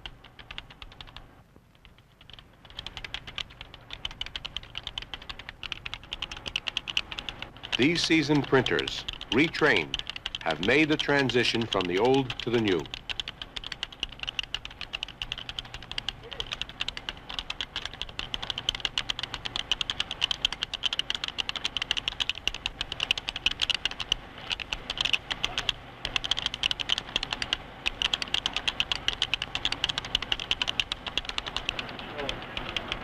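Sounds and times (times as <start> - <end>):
fast keyboard typing clicks: 0.0 - 33.0.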